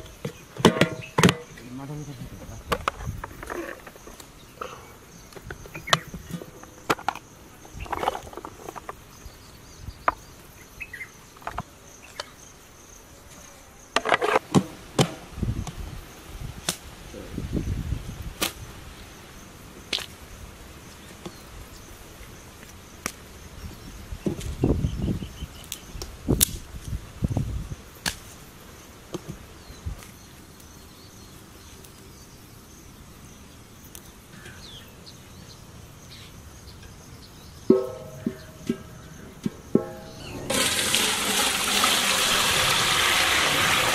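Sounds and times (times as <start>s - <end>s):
sticks snapping: 25.7s - 26.6s, 28.0s - 28.4s.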